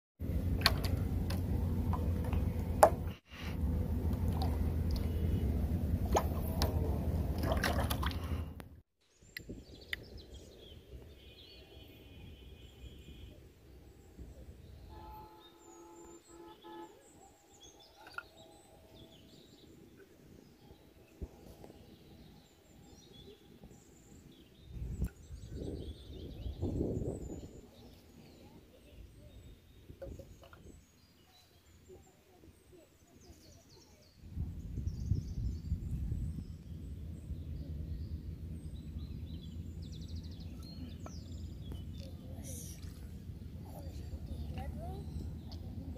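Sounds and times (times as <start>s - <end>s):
birds chirping faintly: 9.0s - 45.9s
wind buffeting microphone: 9.4s - 10.9s, 20.5s - 31.2s, 34.1s - 45.9s.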